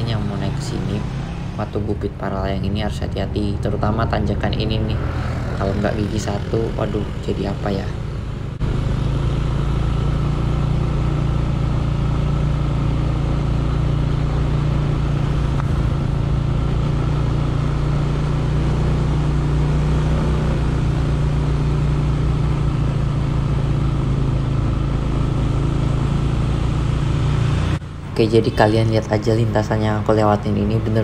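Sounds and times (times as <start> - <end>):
vehicle engine running steadily: 0.0 - 31.0.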